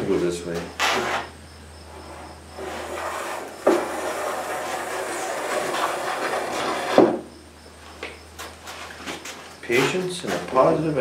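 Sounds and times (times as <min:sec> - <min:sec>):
hand plane strokes on wood: 0:02.1 - 0:07.2.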